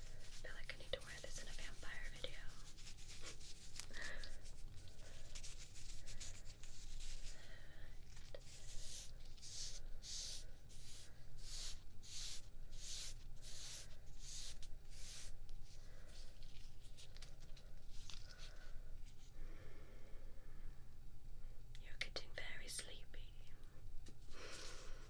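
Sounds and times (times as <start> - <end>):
hands rubbing and scratching: 0.0 - 7.4, 8.0 - 19.2.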